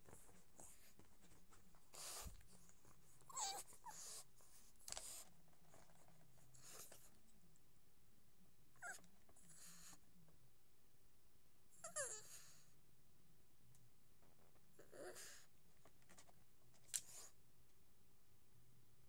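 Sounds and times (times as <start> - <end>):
dog whining: 3.3 - 4.2, 8.8 - 9.9, 11.8 - 12.6, 14.8 - 15.4.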